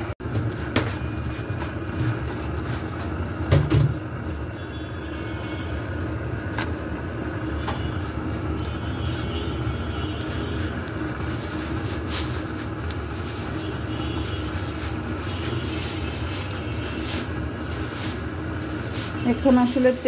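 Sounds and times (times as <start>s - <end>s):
flatbread sizzling in oil: 0.4s - 20.0s
wooden spatula scraping a pan: 10.2s - 19.5s.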